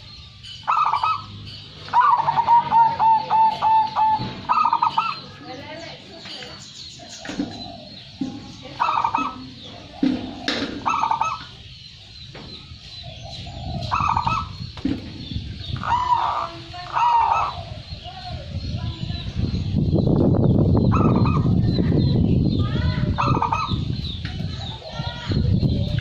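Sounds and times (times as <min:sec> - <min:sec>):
dove cooing: 0:00.7 - 0:05.4, 0:07.1 - 0:11.6, 0:13.0 - 0:14.7, 0:15.7 - 0:18.1, 0:20.8 - 0:21.6, 0:23.0 - 0:23.9.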